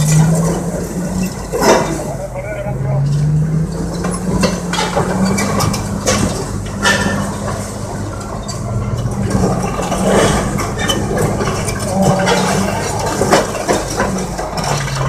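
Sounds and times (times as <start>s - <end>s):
heavy diesel engines running: 0.0s - 15.0s
sharp metallic clanks: 3.0s - 15.0s.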